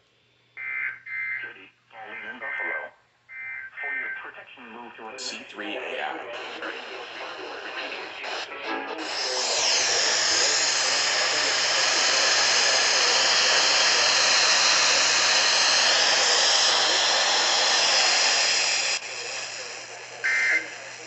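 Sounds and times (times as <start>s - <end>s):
radio static hiss: 0.6s - 21.0s.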